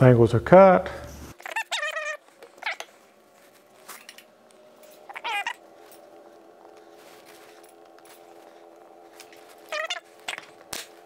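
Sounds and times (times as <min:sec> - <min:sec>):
cat meowing: 0:01.4 - 0:02.9, 0:05.1 - 0:05.6, 0:09.6 - 0:10.5.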